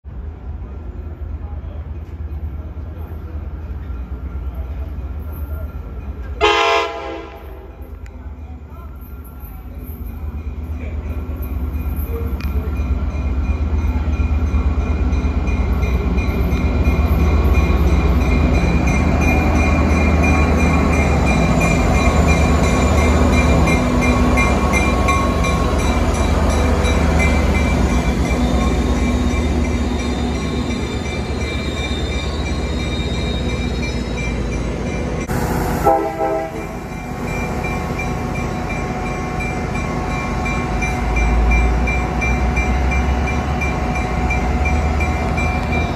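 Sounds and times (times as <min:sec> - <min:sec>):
train engine rumble: 0:00.0 - 0:45.9.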